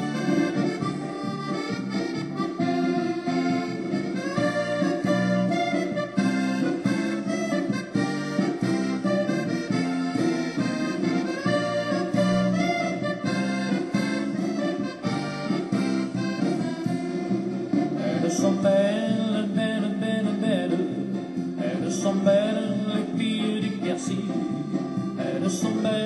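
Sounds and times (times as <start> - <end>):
accordion music: 0.0 - 26.0.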